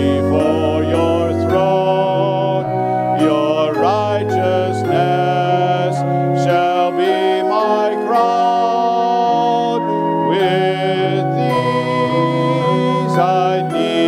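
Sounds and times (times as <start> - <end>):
hymn singing with accompaniment: 0.0 - 14.0.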